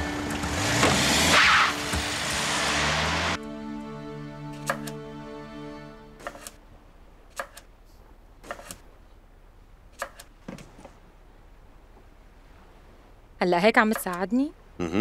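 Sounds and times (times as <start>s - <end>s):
background music: 0.0s - 6.8s.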